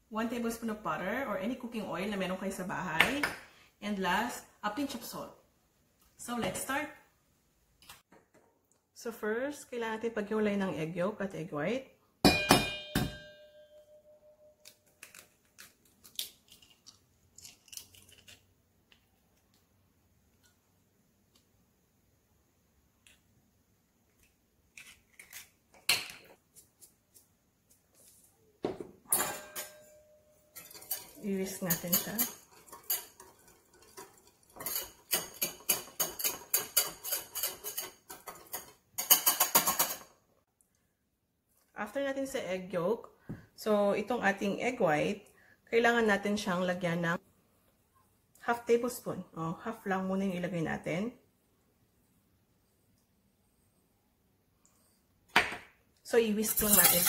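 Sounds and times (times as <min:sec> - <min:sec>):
metal bowl ringing: 0:12.2 - 0:14.6, 0:29.1 - 0:30.6
eggshell crackling: 0:14.8 - 0:19.6
whisk beating eggs in bowl: 0:30.6 - 0:38.7, 0:56.5 - 0:57.0.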